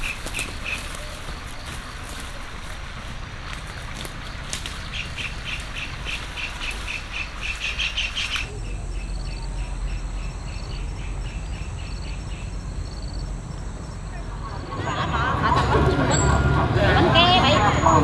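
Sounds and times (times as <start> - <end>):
low background rumble: 0.0 - 18.0
steady high-pitched hum: 7.5 - 18.0.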